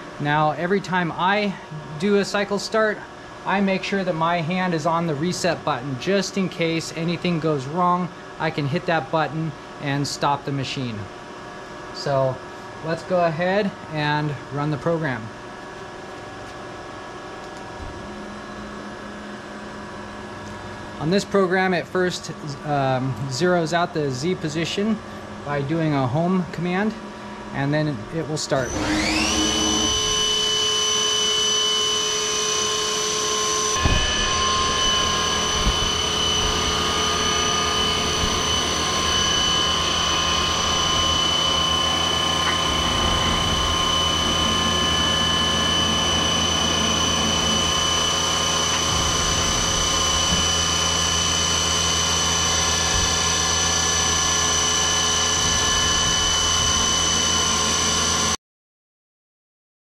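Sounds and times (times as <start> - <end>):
low machine rumble: 12.0 - 30.7, 32.4 - 58.4
spindle whining: 28.6 - 58.4.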